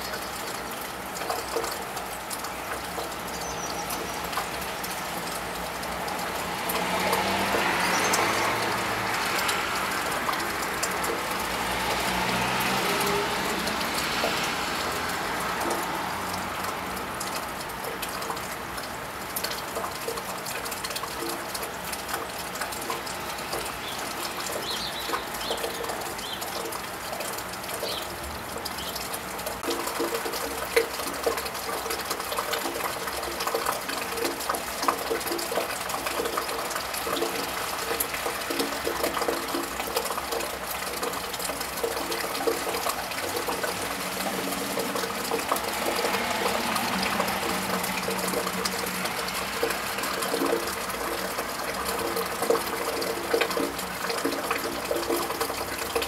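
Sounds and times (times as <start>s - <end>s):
rain on a tiled roof: 0.0s - 56.0s
water dripping: 0.0s - 56.0s
water trickling from gutter: 0.0s - 56.0s
car tyres hissing on wet road: 6.2s - 17.2s, 43.7s - 51.6s.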